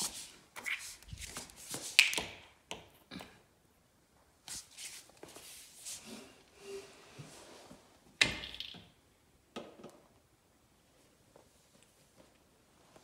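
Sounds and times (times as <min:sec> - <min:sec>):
shuffling on tiled floor: 0:00.0 - 0:02.2, 0:04.4 - 0:08.0.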